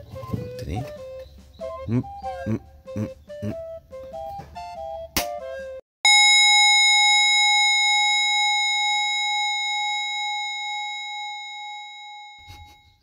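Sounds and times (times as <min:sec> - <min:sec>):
bell-like chime ringing: 0:06.1 - 0:13.0.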